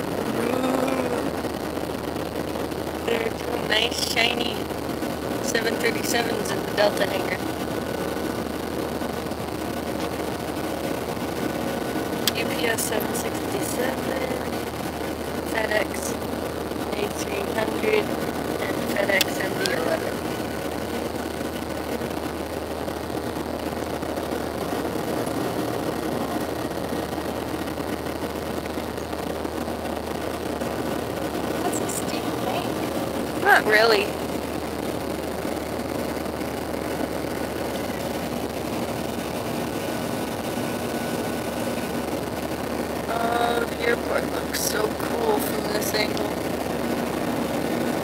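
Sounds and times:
faint thin whine: 0:00.0 - 0:48.0
jet cabin roar: 0:00.0 - 0:48.0
low hum: 0:00.0 - 0:48.0
jet engine and air noise in cabin: 0:02.4 - 0:22.4.

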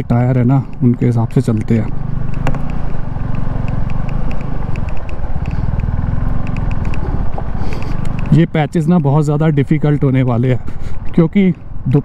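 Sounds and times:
motorcycle engine throbbing: 0:00.0 - 0:12.0
light engine ticking: 0:00.1 - 0:12.0.

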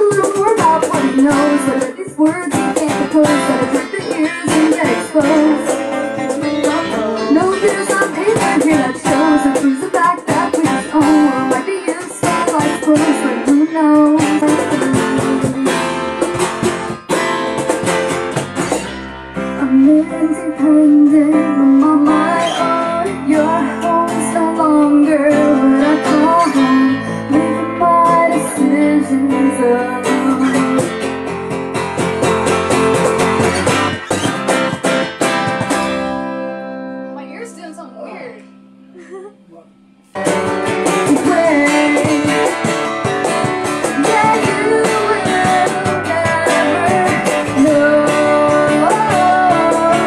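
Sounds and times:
woman singing: 0:00.0 - 0:16.7, 0:19.6 - 0:31.1, 0:40.8 - 0:50.0
cajon hand percussion: 0:00.0 - 0:19.0, 0:30.0 - 0:36.3, 0:40.2 - 0:50.0
keyboard: 0:00.0 - 0:50.0
strummed acoustic guitar: 0:00.0 - 0:50.0.

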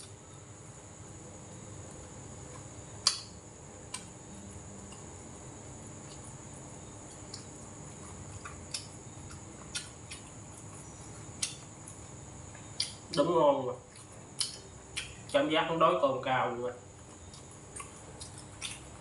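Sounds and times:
steady high hiss: 0:00.0 - 0:19.0.

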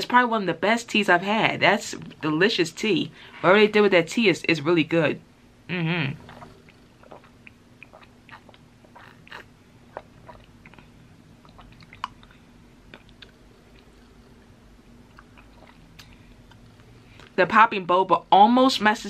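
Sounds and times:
person chewing: 0:06.2 - 0:17.3.

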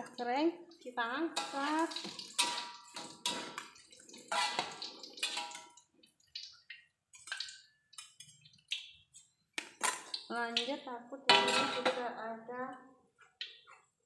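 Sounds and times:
oil crackling and sizzling: 0:00.0 - 0:12.1, 0:13.2 - 0:14.0
utensils scraping a metal wok: 0:01.3 - 0:05.7, 0:11.3 - 0:11.9.

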